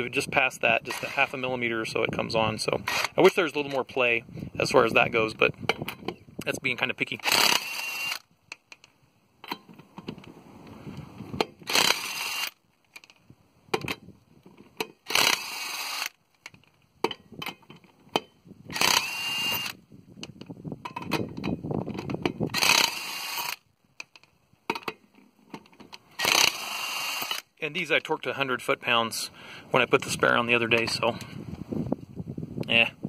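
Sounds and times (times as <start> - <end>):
impact wrench motor running: 2.9 - 3.2, 7.2 - 8.2, 11.6 - 12.6, 15.0 - 16.2, 18.7 - 19.8, 22.5 - 23.6, 26.2 - 27.4.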